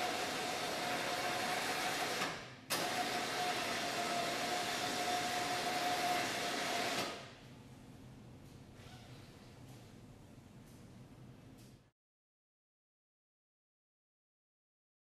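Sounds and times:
electric hoist motor whine: 0.0s - 7.3s.

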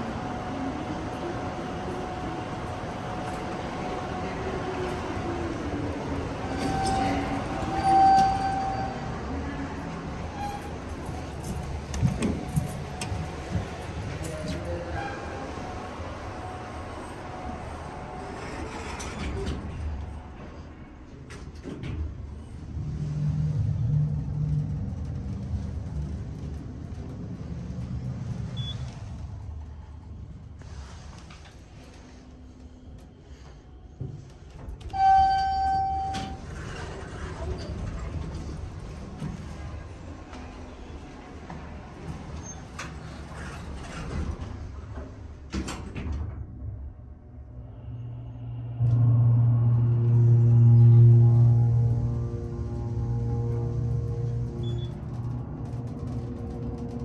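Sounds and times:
low hydraulic hum and rumble: 0.0s - 57.0s
elevator doors sliding shut: 0.2s - 29.6s, 34.0s - 47.1s.

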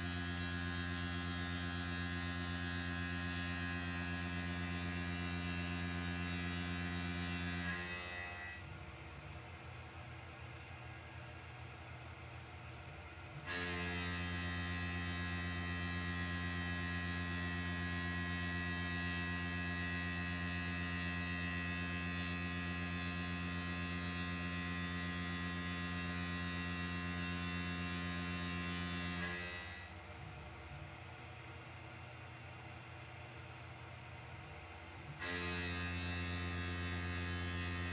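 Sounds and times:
milling machine cutting metal: 27.4s - 29.9s, 35.2s - 37.9s.

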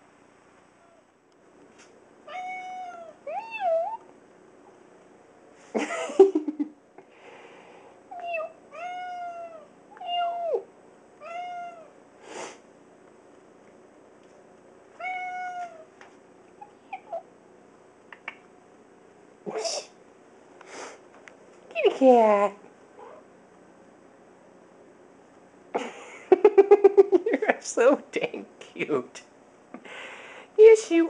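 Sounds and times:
cat meowing: 2.3s - 4.0s, 8.1s - 12.0s, 15.0s - 15.9s.

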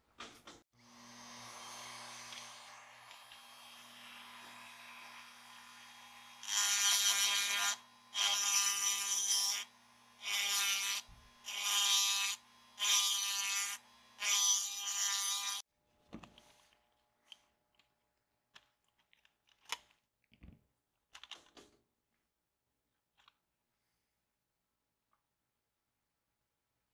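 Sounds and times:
rotary tool grinding metal: 0.9s - 15.6s.

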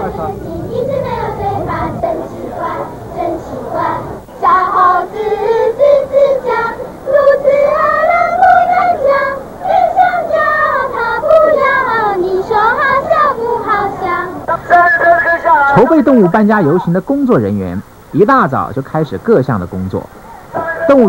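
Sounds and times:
children singing in unison: 0.0s - 14.5s.

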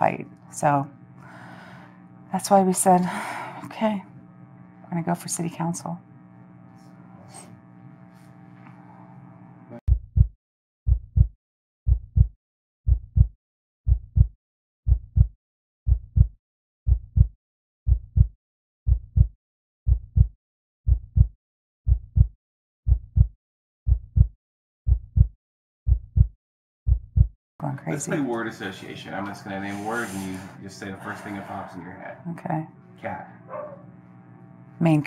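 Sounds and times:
heartbeat thumps: 9.9s - 10.3s, 10.9s - 11.3s, 11.9s - 12.3s, 12.9s - 13.3s, 13.9s - 14.3s, 14.9s - 15.3s, 15.9s - 16.3s, 16.9s - 17.3s, 17.9s - 18.3s, 18.9s - 19.3s, 19.9s - 20.3s, 20.9s - 21.3s, 21.9s - 22.3s, 22.9s - 27.3s.

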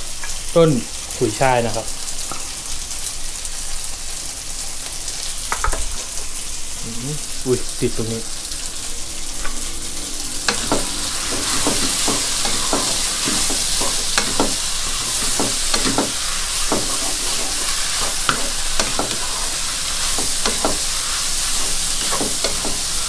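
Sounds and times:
noodles sizzling in a wok: 0.0s - 23.0s
wooden spatula scraping pan: 10.5s - 23.0s.

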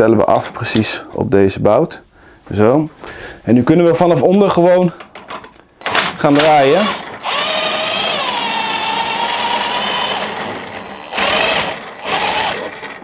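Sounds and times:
power driver motor whirring: 6.9s - 13.0s.

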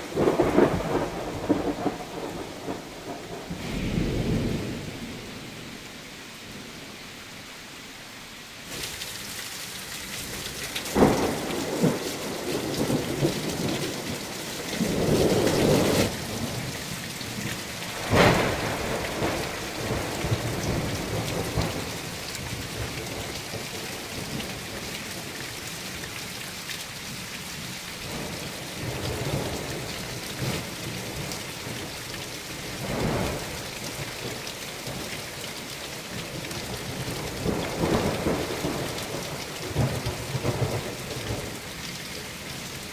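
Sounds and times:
heavy rain: 0.0s - 42.9s
thunder claps: 0.2s - 5.8s, 10.9s - 14.1s, 17.9s - 21.9s.

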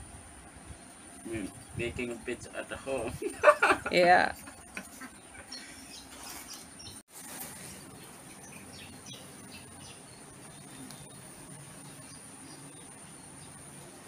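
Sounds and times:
birds chirping: 0.6s - 14.0s
high insect buzz: 5.6s - 14.0s.

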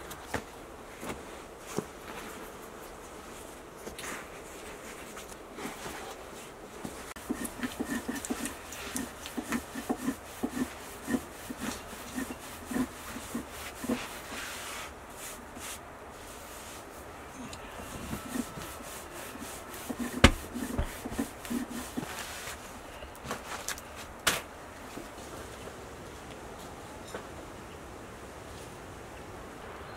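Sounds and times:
dough patted and rubbed by hand: 0.1s - 15.8s, 18.2s - 22.6s.

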